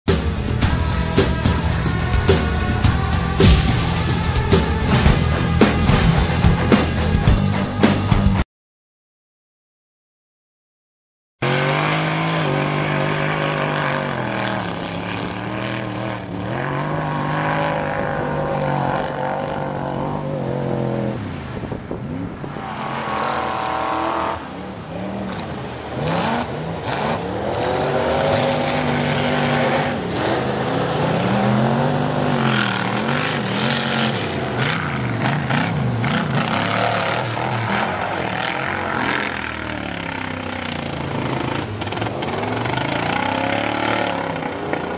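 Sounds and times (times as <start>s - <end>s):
truck engine revving: 11.4s - 44.9s.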